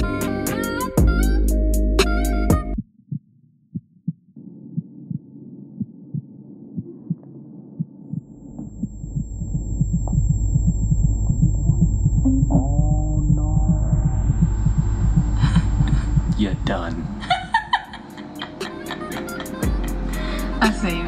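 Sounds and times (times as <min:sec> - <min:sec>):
heartbeat-like thuds: 0:02.6 - 0:17.8
hum: 0:04.4 - 0:21.0
deep bass: 0:08.6 - 0:17.6.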